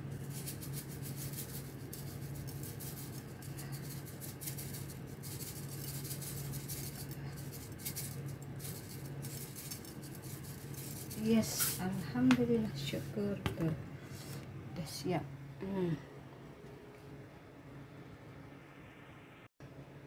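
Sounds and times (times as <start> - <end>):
steady low hum: 0.0 - 20.0
seeds landing on plate: 3.5 - 13.8.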